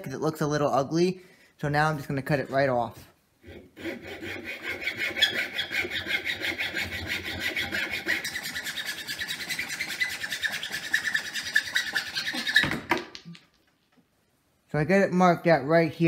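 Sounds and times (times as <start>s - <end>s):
hand saw cutting wood: 3.4s - 13.0s.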